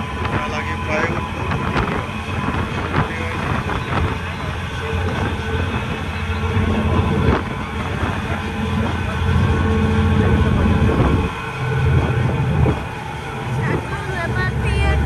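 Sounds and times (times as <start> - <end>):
vehicle rumble: 0.0 - 15.0.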